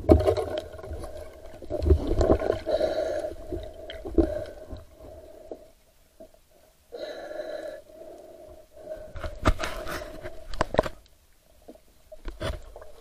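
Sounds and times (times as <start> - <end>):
underwater knocks and scrapes: 9.1 - 11.0, 11.6 - 13.0.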